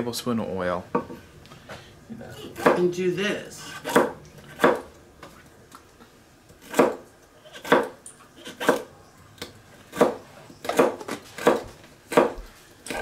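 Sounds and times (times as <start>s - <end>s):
knife chopping on wooden board: 2.6s - 2.9s, 3.7s - 4.9s, 6.6s - 8.9s, 9.9s - 13.0s.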